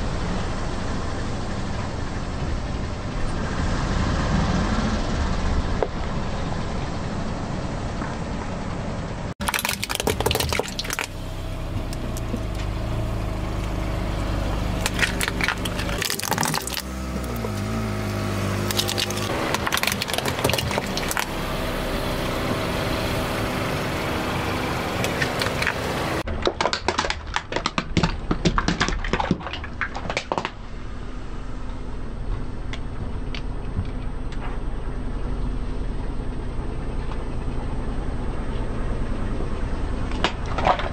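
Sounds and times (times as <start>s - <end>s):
car engine running: 0.0s - 26.4s, 27.0s - 40.9s
plastic toys cracking and snapping: 9.4s - 11.1s, 14.8s - 16.9s, 18.7s - 21.3s, 25.4s - 30.6s.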